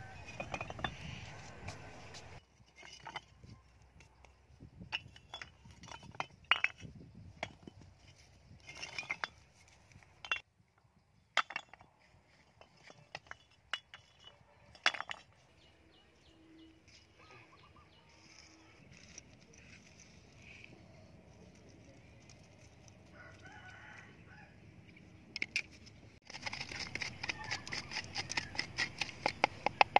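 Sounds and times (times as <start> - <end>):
bricks clinking together: 0.0 - 10.5, 11.3 - 15.7, 25.4 - 29.9.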